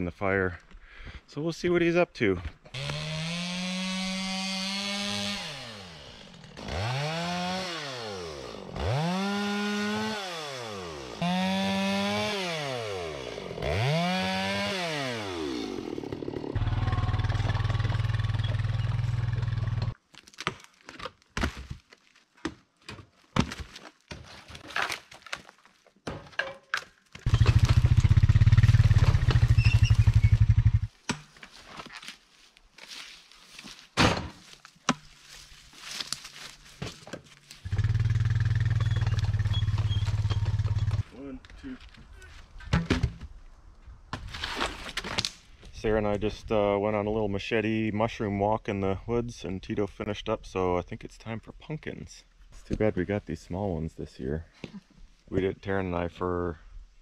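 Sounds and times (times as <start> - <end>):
atv engine revving: 6.6 - 20.0, 27.3 - 30.9, 37.7 - 41.0.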